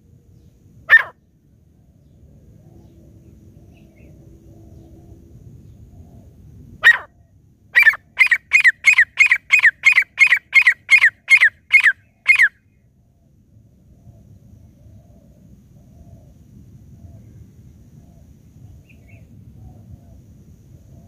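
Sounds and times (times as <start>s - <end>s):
francolin calling: 0.9s - 1.2s, 6.8s - 7.1s, 7.8s - 12.8s.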